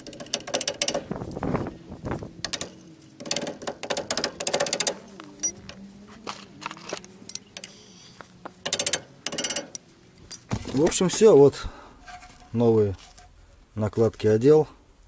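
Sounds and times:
metal tools clinking on brake caliper: 2.5s - 5.8s, 6.7s - 8.0s, 8.6s - 10.5s.

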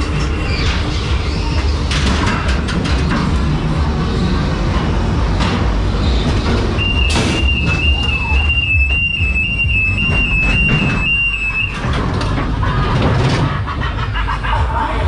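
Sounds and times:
ride car rumbling on track: 0.0s - 15.0s
two-tone electronic warble: 6.0s - 14.7s.

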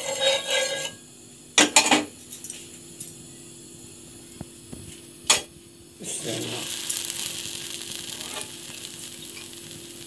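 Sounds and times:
sandwich sizzling in hot oil: 4.6s - 10.0s.

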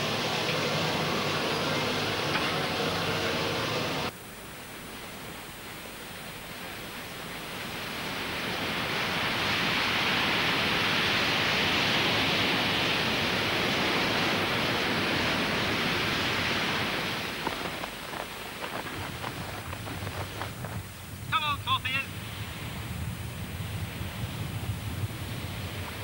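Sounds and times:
water rushing and splashing: 0.0s - 26.0s
wind buffeting: 5.8s - 26.0s.

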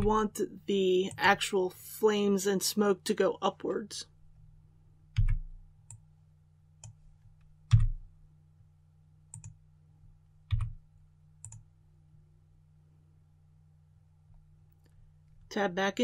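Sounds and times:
loud keystrokes with dull thud: 7.7s - 8.0s
computer keyboard and mouse clicks: 9.3s - 9.6s, 10.5s - 10.8s, 11.4s - 11.6s.

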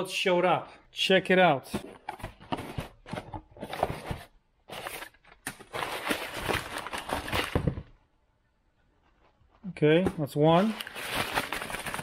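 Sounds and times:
packing paper rustling: 3.6s - 7.8s, 10.2s - 12.0s.

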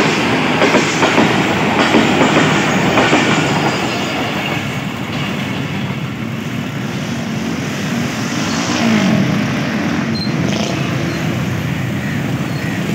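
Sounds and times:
motorcycle engines running and revving: 7.1s - 12.9s.

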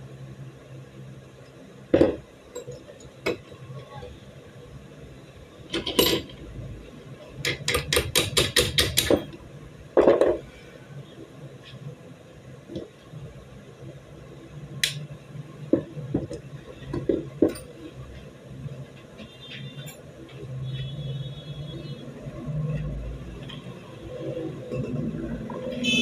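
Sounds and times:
tools knocking on wooden workbench: 2.0s - 2.2s, 10.0s - 10.4s, 15.7s - 17.6s.

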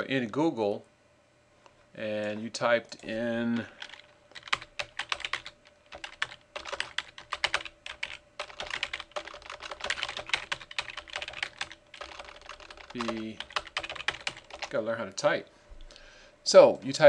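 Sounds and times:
computer keyboard typing: 3.8s - 14.8s.

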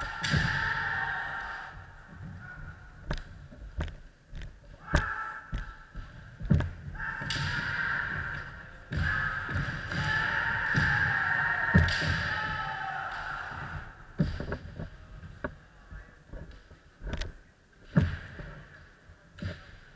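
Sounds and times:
bamboo swords striking: 0.0s - 0.9s, 4.8s - 11.1s, 11.7s - 13.4s
people shouting: 0.0s - 2.9s, 4.8s - 5.9s, 6.9s - 14.2s
feet stamping on wooden floor: 3.0s - 7.1s.

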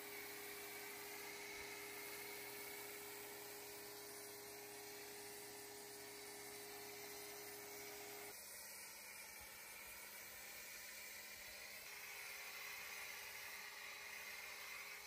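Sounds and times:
foam cannon hissing: 0.0s - 15.0s.

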